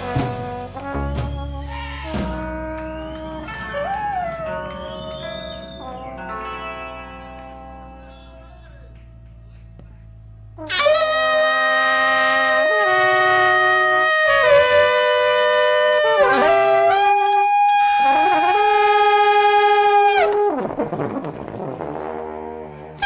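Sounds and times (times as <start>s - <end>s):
saxophone and trombone duet: 0.0s - 4.0s, 10.6s - 22.6s
band playing: 0.0s - 9.4s, 10.5s - 23.0s.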